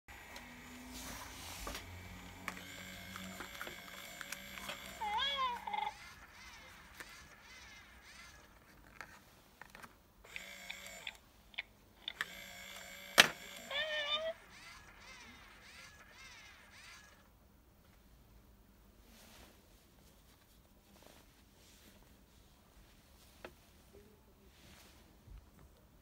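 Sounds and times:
faint motor whir: 0.1 - 17.4
electronic toy meow: 2.6 - 8.5, 13.2 - 17.2.

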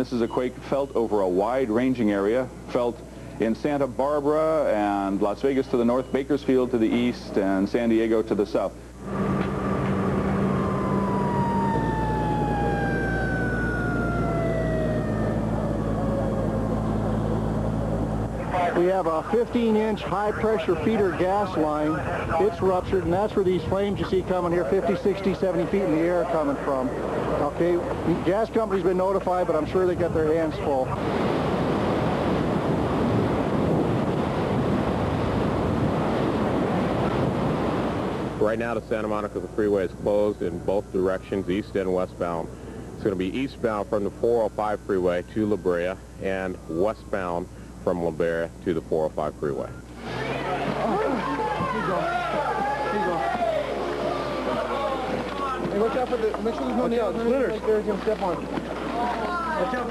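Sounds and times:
steady rushing noise: 7.2 - 39.3
low hum: 8.7 - 38.4
siren winding down: 9.0 - 22.6.

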